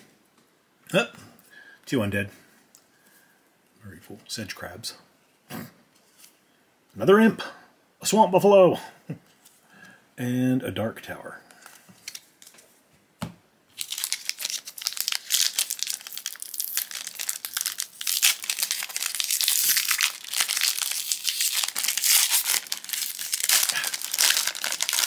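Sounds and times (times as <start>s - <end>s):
foil wrapper crinkling: 11.6s - 12.6s, 13.7s - 25.0s.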